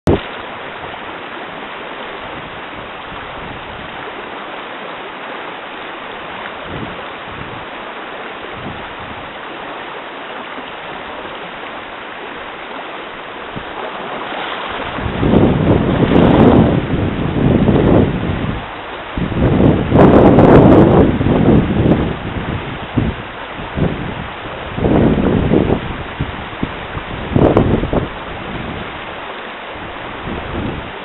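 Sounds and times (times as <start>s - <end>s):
river water rushing over rocks: 0.1s - 31.0s
wind buffeting microphone: 2.1s - 4.2s, 6.2s - 7.8s, 8.4s - 9.5s, 13.3s - 29.2s, 29.8s - 31.0s.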